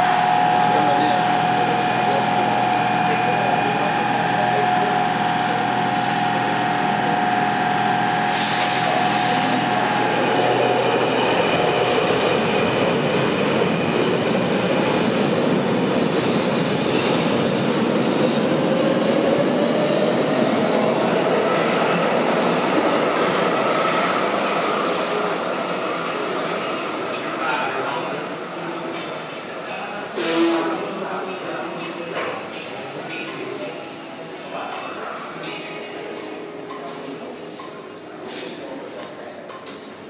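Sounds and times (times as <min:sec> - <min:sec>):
train rumble with rising whine: 0:00.0 - 0:30.2.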